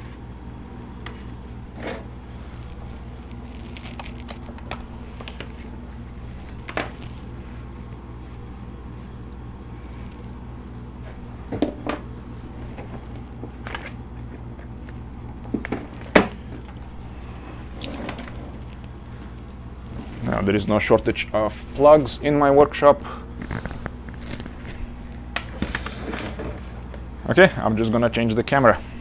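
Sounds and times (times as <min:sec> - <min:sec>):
low background hum: 0:00.0 - 0:29.0
clicks and knocks of cables: 0:06.4 - 0:07.2, 0:12.7 - 0:16.8, 0:23.4 - 0:27.0.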